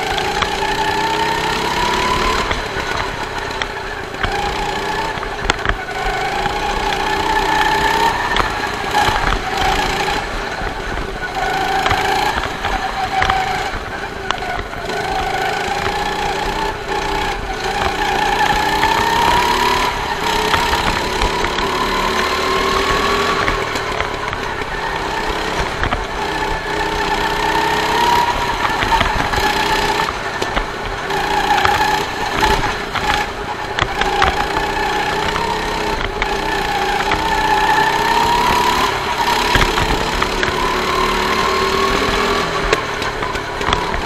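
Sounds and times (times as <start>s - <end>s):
go-kart engine running hard: 0.0s - 44.0s.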